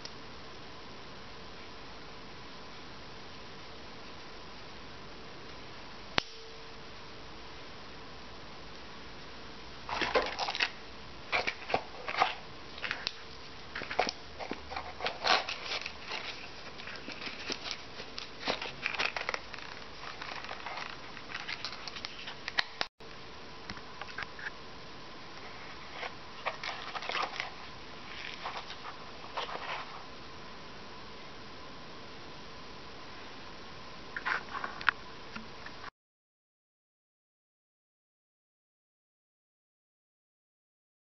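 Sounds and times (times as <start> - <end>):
handling clicks and rustles: 9.9 - 22.9, 25.4 - 30.1.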